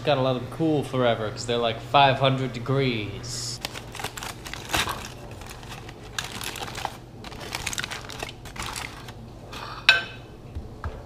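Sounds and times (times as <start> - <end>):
aluminium foil crinkling: 3.4 - 9.2.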